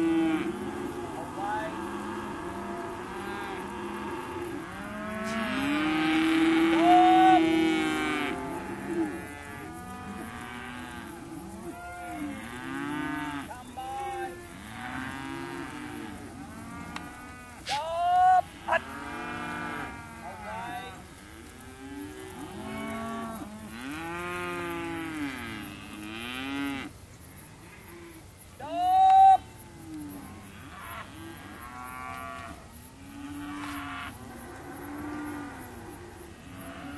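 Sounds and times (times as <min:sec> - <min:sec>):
calves bawling: 0:00.0 - 0:21.3.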